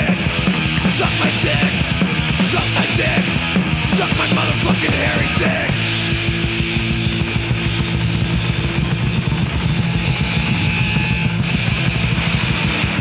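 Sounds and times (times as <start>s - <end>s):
distorted punk instrumental: 0.0s - 13.0s.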